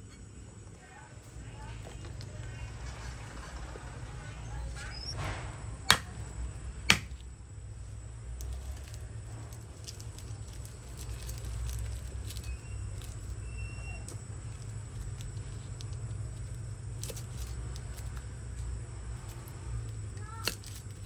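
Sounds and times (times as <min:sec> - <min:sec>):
steady low hum: 0:00.0 - 0:21.0
sharp cracks: 0:05.2 - 0:07.4.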